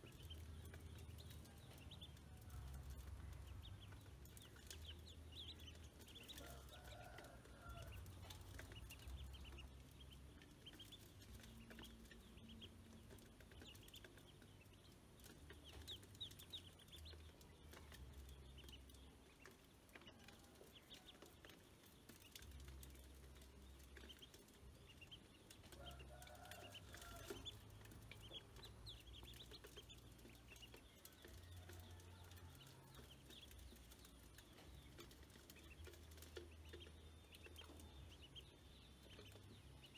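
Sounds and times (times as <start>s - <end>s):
ducklings peeping: 0.0s - 39.9s.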